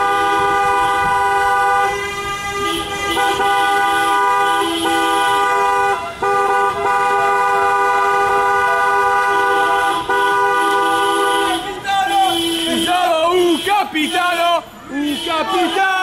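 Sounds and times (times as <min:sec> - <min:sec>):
car horns blasting: 0:00.0 - 0:16.0.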